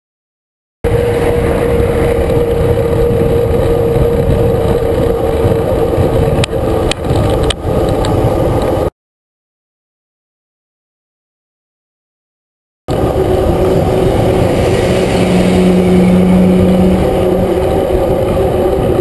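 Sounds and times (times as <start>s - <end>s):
road noise: 0.8s - 8.9s, 12.9s - 19.0s
wind buffeting microphone: 0.8s - 8.9s, 12.9s - 19.0s
steady hum: 12.9s - 19.0s.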